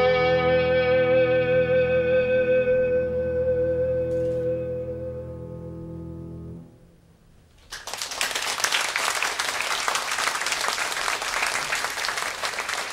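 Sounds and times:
audience applause: 7.6 - 12.9.

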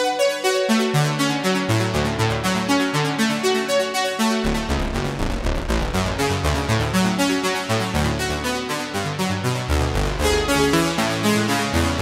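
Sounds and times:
sequenced synth notes: 3.9 - 8.9
deep synth bass line: 4.4 - 8.4, 9.5 - 12.0.

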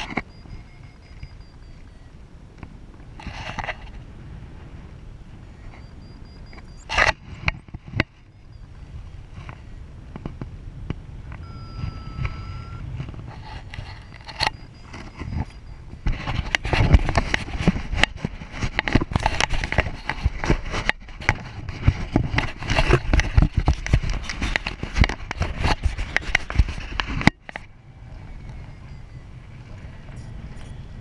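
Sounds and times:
wind buffeting microphone: 0.0 - 31.0.

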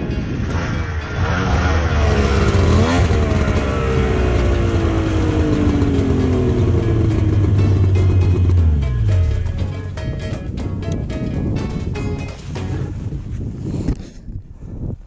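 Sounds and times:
snowmobile engine revving: 0.4 - 9.4.

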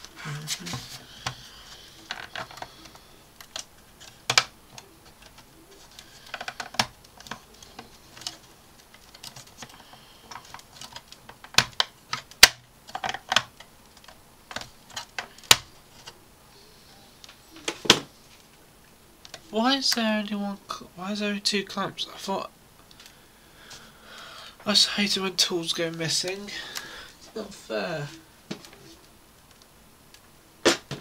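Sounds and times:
hard plastic clicking and tapping: 6.2 - 8.4.

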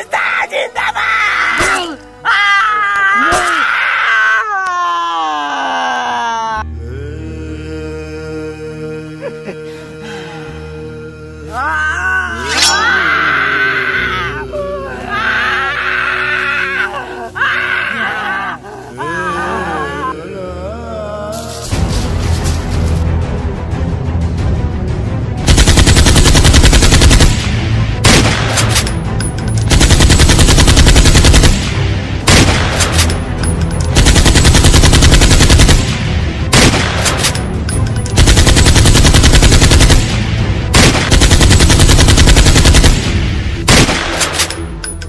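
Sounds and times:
machine-gun bursts: 25.5 - 27.3, 29.7 - 31.6, 33.9 - 35.9, 38.2 - 40.1, 40.8 - 43.0.

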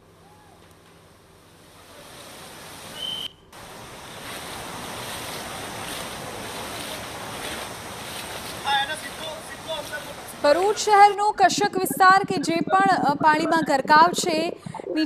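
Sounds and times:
heavy rain hiss: 0.0 - 11.5.

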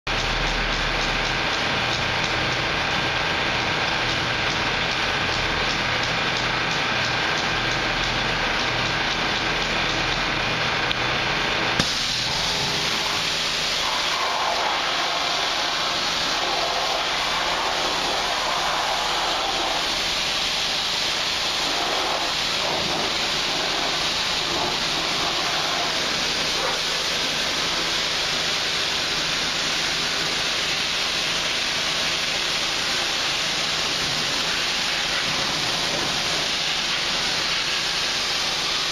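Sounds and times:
pressure washer spray hissing: 11.8 - 38.9.

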